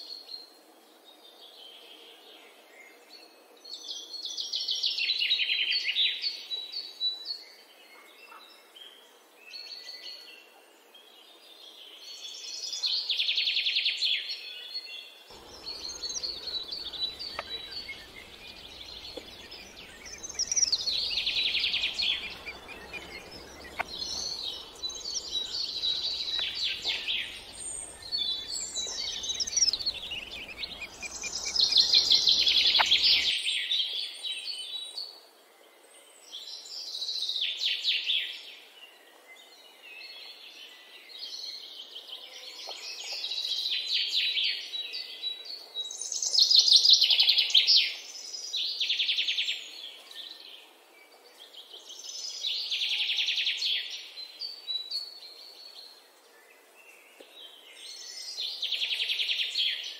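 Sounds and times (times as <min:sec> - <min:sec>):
background hiss: 0:15.2 - 0:33.6
nestlings begging calls: 0:15.3 - 0:33.3.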